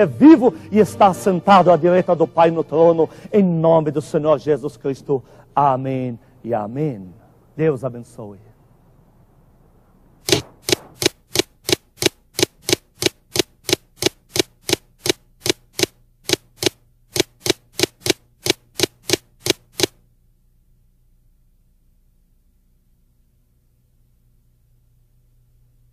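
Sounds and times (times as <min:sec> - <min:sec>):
typewriter key clacks: 0:10.3 - 0:19.9.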